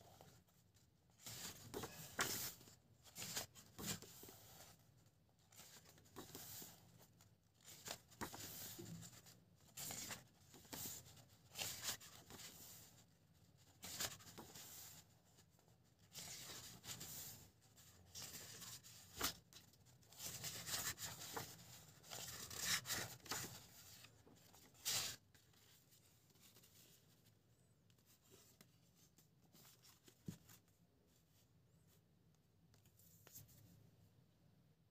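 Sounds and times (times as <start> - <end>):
book pages turning: 18.1 - 27.0.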